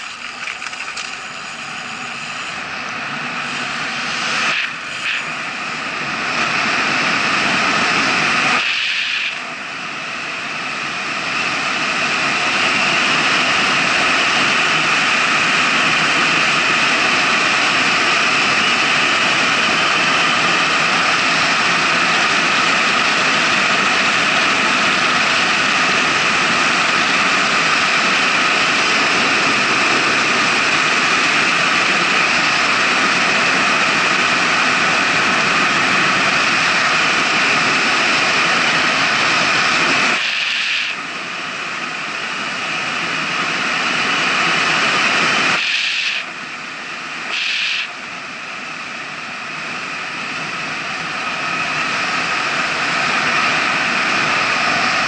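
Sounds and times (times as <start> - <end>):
bicycle tyres on asphalt: 0.0 - 2.8.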